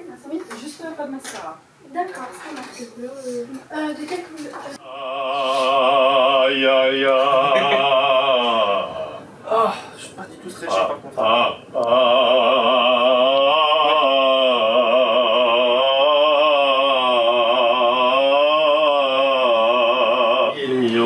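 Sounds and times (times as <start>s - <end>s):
man singing long note with vibrato: 4.8s - 9.3s, 11.2s - 21.0s.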